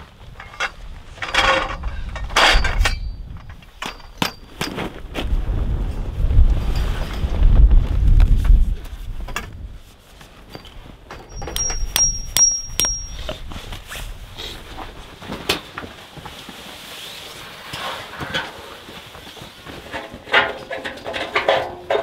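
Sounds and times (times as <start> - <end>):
metal tent stakes clinking: 2.4 - 4.9, 10.5 - 13.4, 19.8 - 22.0
high metallic ringing: 10.5 - 13.4
tent canvas rustling: 13.5 - 20.1.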